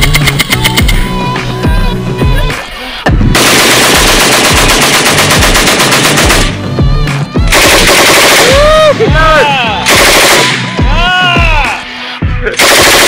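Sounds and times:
electronic music with synth tones: 0.0s - 5.6s, 6.2s - 13.0s
machine gun automatic fire: 3.4s - 6.6s, 7.5s - 8.6s, 9.9s - 10.6s, 12.6s - 13.0s.

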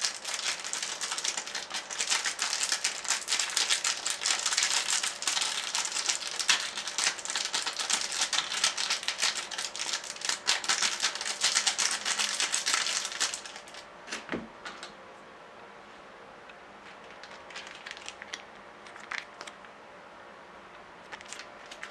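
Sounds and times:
plastic sachet crinkling: 0.0s - 13.9s, 17.0s - 19.6s, 21.0s - 21.9s.

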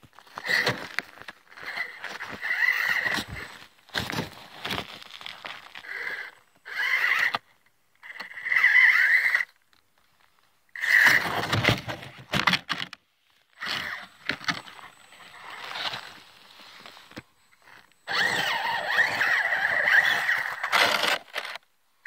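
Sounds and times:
tyres crunching snow: 0.0s - 7.3s, 13.6s - 21.6s
electric motor whining: 13.6s - 21.6s.

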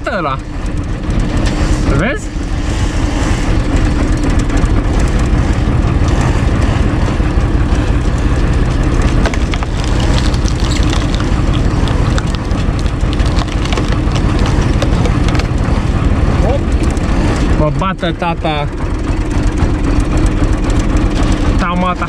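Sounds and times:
tractor diesel engine running: 0.0s - 22.0s
wood cracking and creaking: 3.5s - 17.6s, 20.5s - 21.7s.

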